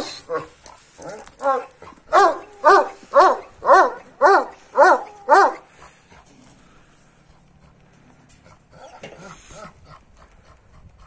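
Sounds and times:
large dog barking: 0.0s - 5.8s.

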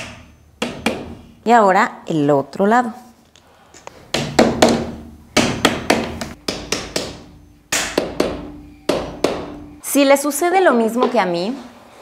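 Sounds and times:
hammer knocking wooden block: 0.0s - 1.2s, 4.1s - 9.6s.

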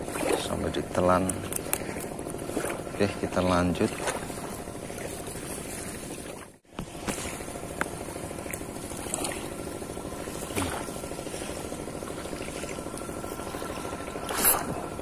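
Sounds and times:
waves lapping on shore: 0.0s - 15.0s
fishing rod clicks and knocks: 1.0s - 2.3s.

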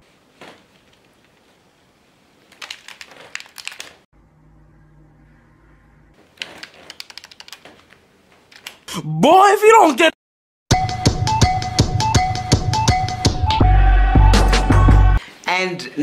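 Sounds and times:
game controller buttons clicking: 2.5s - 3.9s, 6.4s - 8.8s.

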